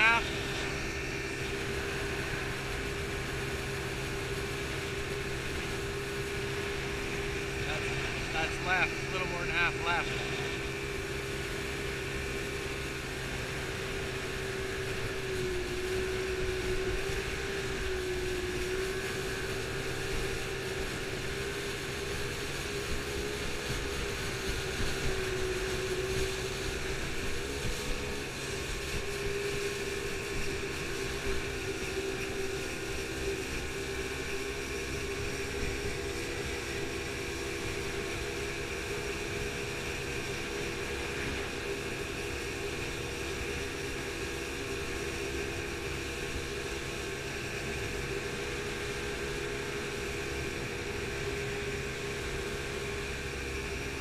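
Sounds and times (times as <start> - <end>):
motorboat engine running: 0.0 - 54.0
wind: 0.0 - 54.0.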